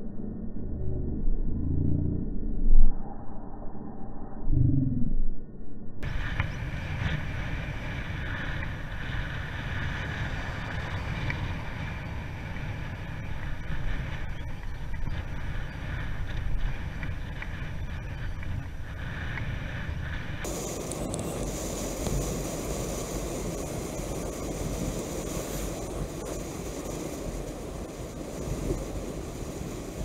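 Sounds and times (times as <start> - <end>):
wind buffeting microphone: 6.0 - 30.0.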